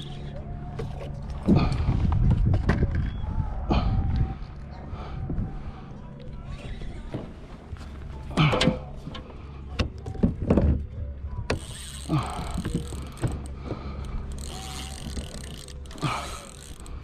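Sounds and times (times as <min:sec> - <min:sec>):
gear knocking and creaking: 0:00.0 - 0:03.3, 0:06.2 - 0:17.0
wind buffeting microphone: 0:01.5 - 0:07.1.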